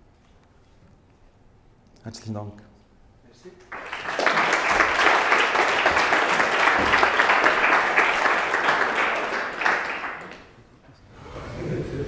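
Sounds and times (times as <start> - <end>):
audience applauding: 3.6 - 10.6.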